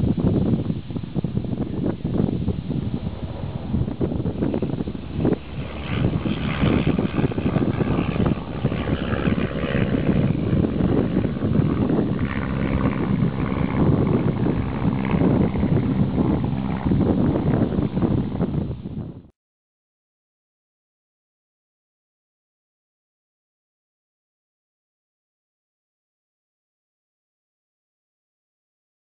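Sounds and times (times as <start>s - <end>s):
propeller plane engine at takeoff: 0.0s - 19.3s
wind buffeting microphone: 0.0s - 19.3s.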